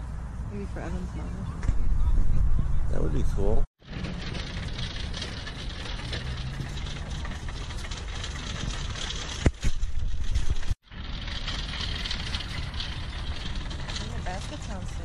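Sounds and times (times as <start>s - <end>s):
shopping cart rattling over asphalt: 3.8s - 15.0s.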